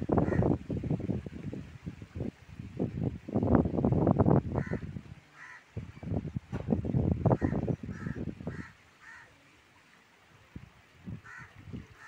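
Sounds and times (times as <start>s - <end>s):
low gusty buffeting: 0.0s - 8.7s
crow cawing: 4.6s - 4.8s, 5.4s - 5.6s, 7.3s - 9.3s, 11.2s - 12.0s.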